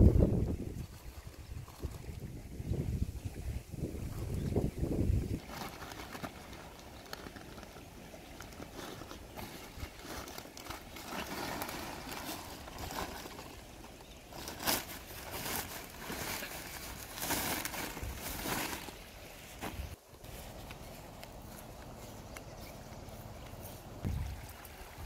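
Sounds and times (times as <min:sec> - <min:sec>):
plastic sack rustling and crinkling: 0:03.8 - 0:21.6.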